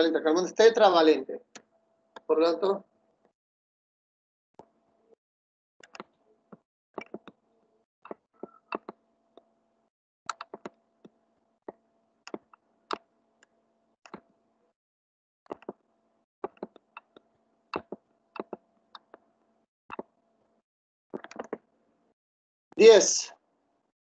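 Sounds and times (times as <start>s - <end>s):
computer mouse clicks: 5.8s - 6.2s, 8.1s - 9.0s, 10.3s - 11.2s, 17.8s - 19.2s, 21.2s - 21.6s.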